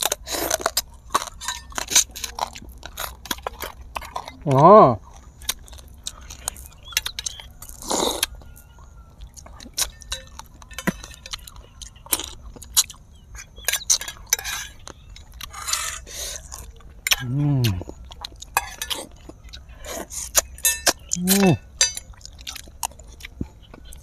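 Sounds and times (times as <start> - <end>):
chewing and crunching food: 0.0 - 24.0
metal spoon clinking on dishes: 9.8 - 11.6, 13.6 - 14.9, 18.5 - 19.3, 20.6 - 22.2.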